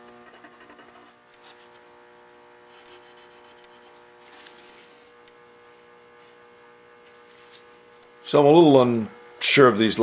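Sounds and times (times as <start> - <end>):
electrical hum: 0.0 - 10.0
pencil scratching: 0.2 - 1.7, 2.7 - 4.0.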